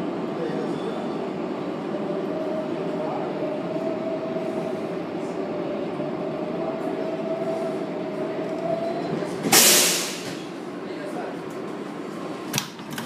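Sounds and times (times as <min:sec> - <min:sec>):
train whine: 0:00.0 - 0:12.5
subway train rumble: 0:00.0 - 0:13.0
air brake hiss: 0:09.5 - 0:10.4.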